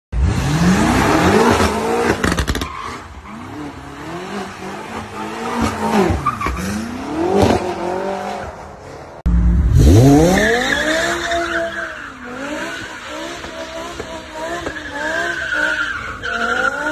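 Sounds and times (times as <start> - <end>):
car engine revving: 3.3 - 16.9
high revving engine: 9.3 - 16.9.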